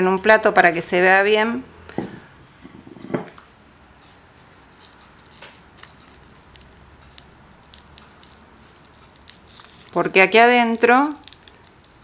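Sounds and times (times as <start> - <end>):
dry seed capsule crackling: 4.5 - 12.0.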